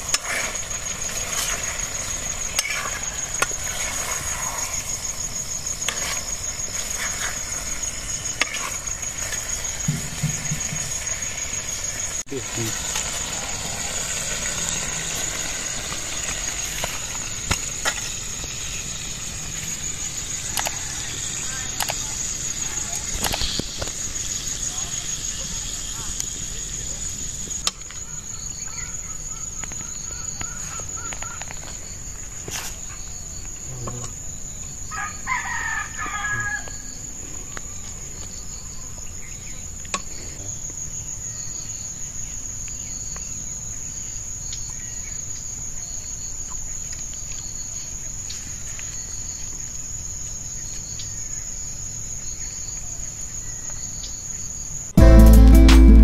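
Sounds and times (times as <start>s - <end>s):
crickets trilling: 0.0s - 55.0s
rooster crowing: 34.9s - 36.9s
music: 55.0s - 56.0s.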